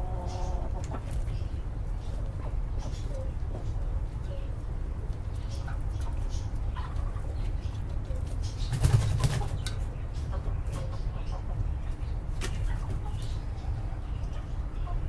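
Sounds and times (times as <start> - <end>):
chickens clucking: 0.0 - 15.0
chicken wings flapping: 8.7 - 9.7.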